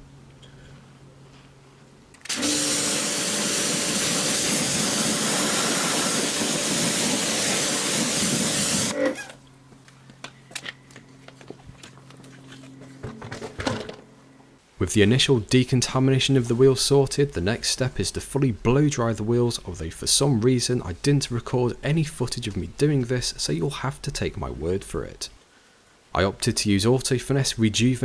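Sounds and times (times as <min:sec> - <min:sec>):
pump humming: 0:02.2 - 0:09.6
pressure washer jet hissing: 0:02.3 - 0:09.3.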